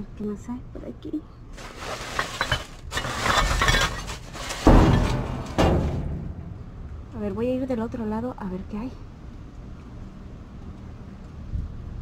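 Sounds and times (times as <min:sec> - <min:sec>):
plastic bags crinkling: 0:01.6 - 0:04.9
loud thump: 0:04.6 - 0:07.0.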